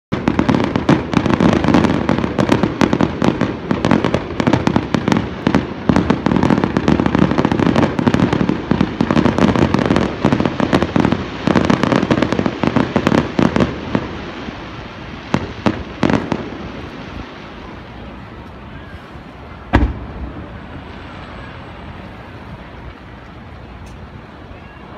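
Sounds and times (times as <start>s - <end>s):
fireworks bursting and crackling: 0.1s - 24.9s.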